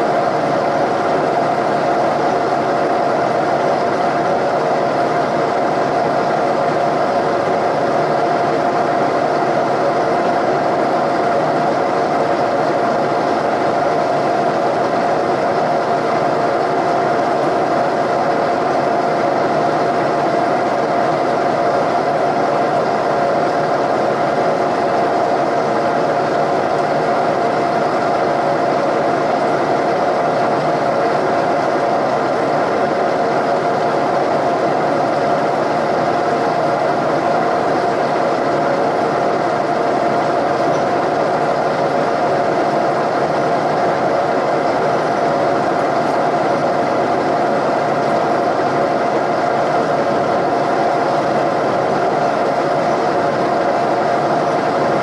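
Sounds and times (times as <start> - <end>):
milling machine spindle whine: 0.0 - 55.0
drill bit cutting metal: 38.6 - 46.7, 47.5 - 49.3.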